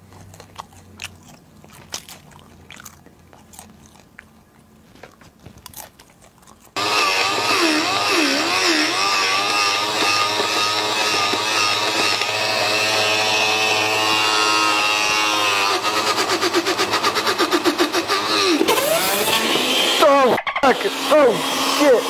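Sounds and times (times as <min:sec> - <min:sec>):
blender motor whirring: 0:06.8 - 0:22.0.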